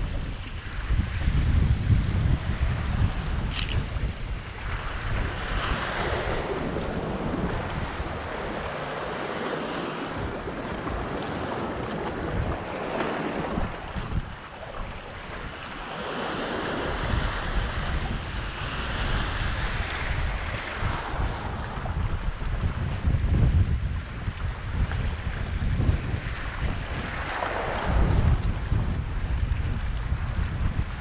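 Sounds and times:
wind buffeting microphone: 0:00.0 - 0:31.0
small waves breaking on rocks: 0:03.4 - 0:22.6, 0:26.1 - 0:28.7.

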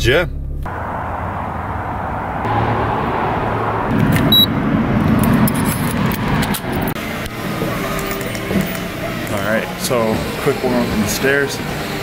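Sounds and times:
car engine and road noise: 0:00.0 - 0:12.0
high electronic beep: 0:04.3 - 0:04.5.

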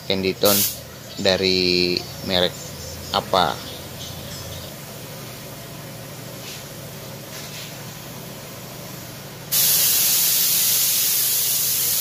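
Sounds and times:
spray gun hissing: 0:00.4 - 0:00.8, 0:08.9 - 0:12.0.

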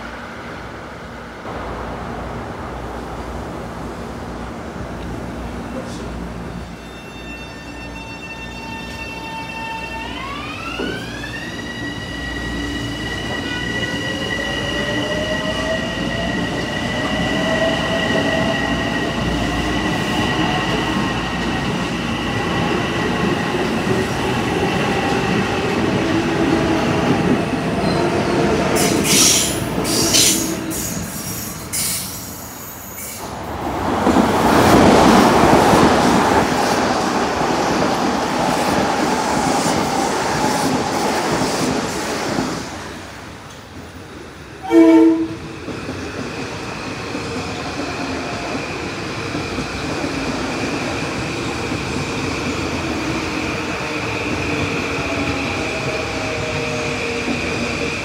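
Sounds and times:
passing train rumble: 0:00.0 - 0:58.0.

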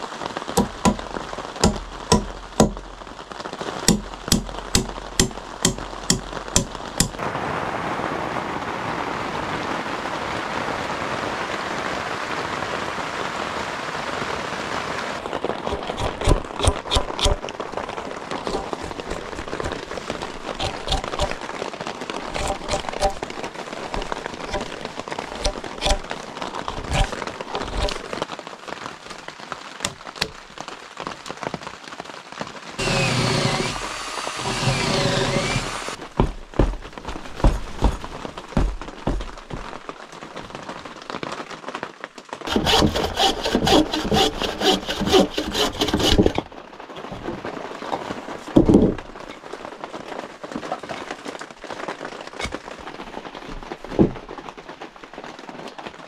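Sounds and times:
rain hissing: 0:00.0 - 0:31.3, 0:32.4 - 0:41.5
drips and knocks: 0:00.6 - 0:02.9, 0:03.9 - 0:07.2, 0:35.4 - 0:39.8.

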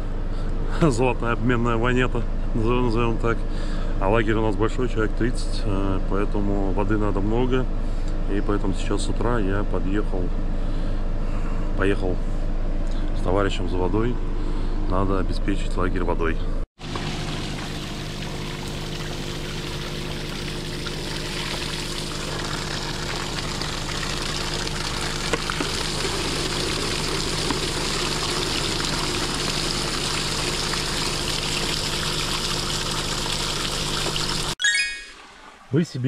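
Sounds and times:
water pouring and running: 0:16.8 - 0:35.7.

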